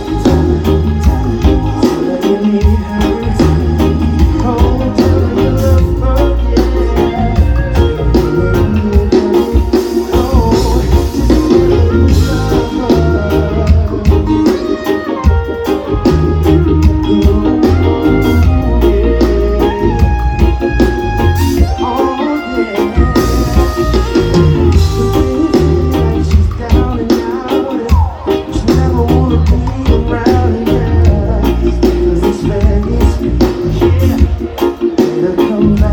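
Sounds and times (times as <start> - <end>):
live band playing: 0.0 - 35.9
person singing: 0.0 - 35.9.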